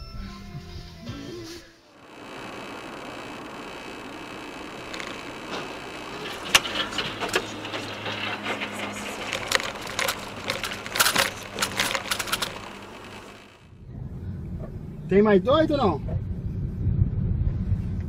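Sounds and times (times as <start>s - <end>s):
engine hum: 1.9s - 15.2s
sharp knocks and clatters: 4.6s - 13.6s.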